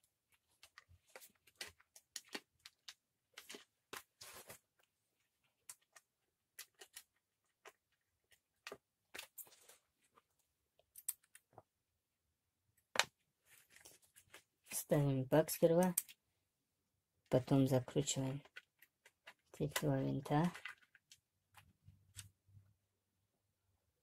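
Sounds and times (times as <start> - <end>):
plastic parts clicking and scraping: 0.3 - 4.7, 5.4 - 10.2, 18.3 - 22.4.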